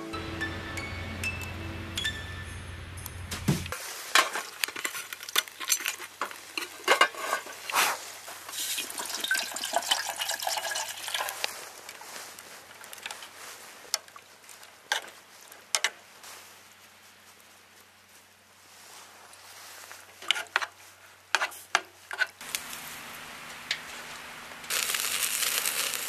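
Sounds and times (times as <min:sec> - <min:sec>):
steady hiss: 0:22.4 - 0:26.0.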